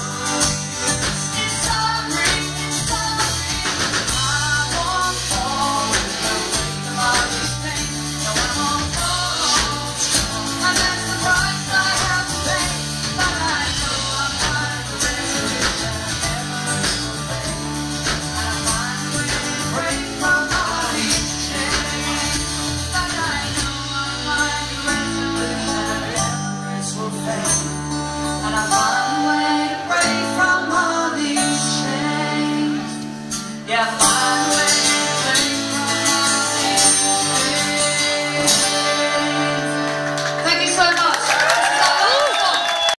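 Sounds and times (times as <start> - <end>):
steady drum beat: 0.0 - 26.4
woman singing: 0.0 - 27.7, 28.4 - 33.0, 33.6 - 42.7
electric bass: 0.0 - 40.7
strummed acoustic guitars: 0.0 - 41.0.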